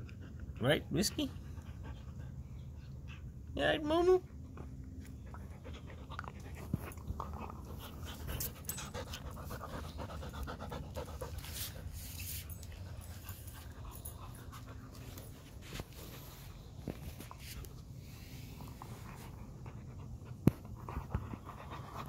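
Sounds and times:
dog panting: 0:00.0 - 0:22.0.

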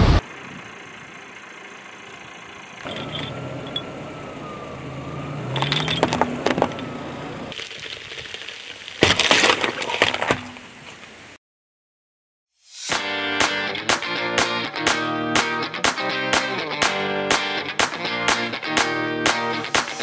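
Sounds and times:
car engine hum: 0:00.0 - 0:07.6
watermelon crushing: 0:07.5 - 0:10.6.

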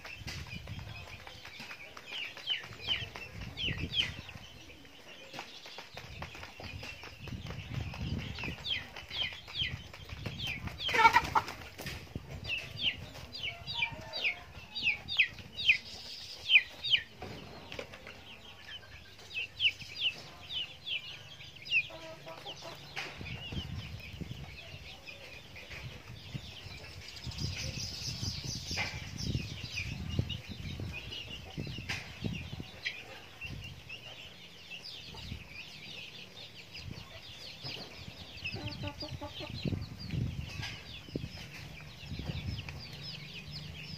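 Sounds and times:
beaks tapping on plastic tarp: 0:00.0 - 0:12.7
chicks chirping and clucking: 0:00.0 - 0:43.9.

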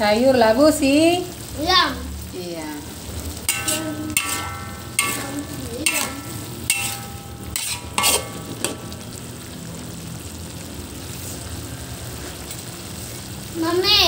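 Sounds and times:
food sizzling: 0:00.0 - 0:14.0
metal spatula knocking on wok: 0:03.4 - 0:09.1.

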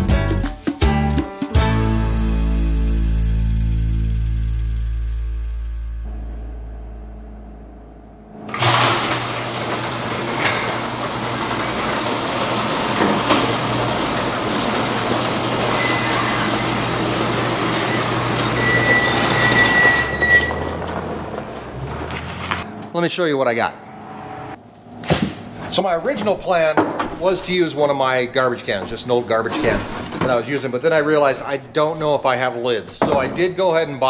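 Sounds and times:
music: 0:00.0 - 0:06.1
garage door opener motor hum: 0:06.0 - 0:23.0
thin squeal: 0:18.5 - 0:20.7.

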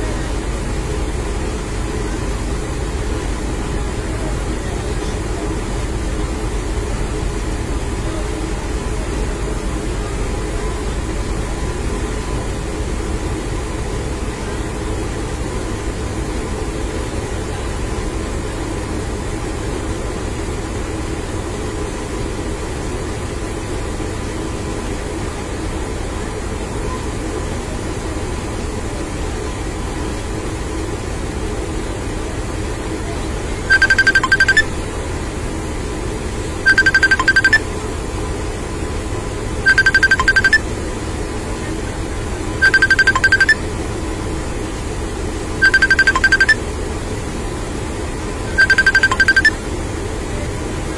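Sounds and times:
high electronic tone: 0:33.7 - 0:34.8, 0:36.7 - 0:37.6, 0:39.7 - 0:40.6, 0:42.6 - 0:43.6, 0:45.6 - 0:46.6, 0:48.6 - 0:49.6.

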